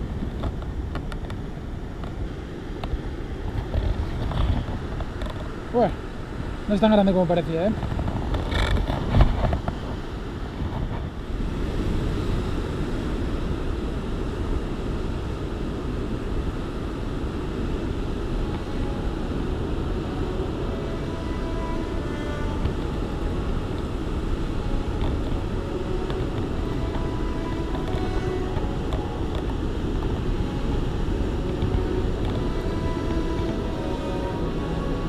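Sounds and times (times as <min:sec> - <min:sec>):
sea surf rumbling: 0:00.0 - 0:35.0
wind on microphone: 0:00.0 - 0:35.0.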